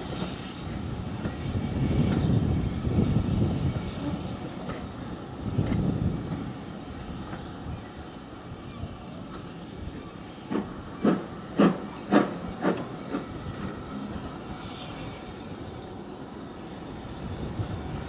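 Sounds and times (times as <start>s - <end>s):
steam locomotive exhaust beats: 0.0s - 8.6s, 9.2s - 18.0s
train moving off: 0.0s - 18.0s.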